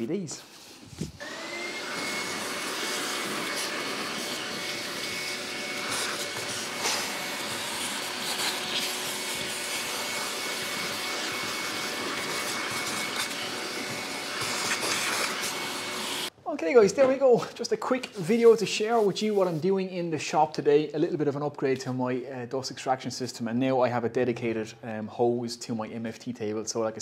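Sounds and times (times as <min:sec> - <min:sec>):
dust extractor motor running: 0:01.2 - 0:16.3.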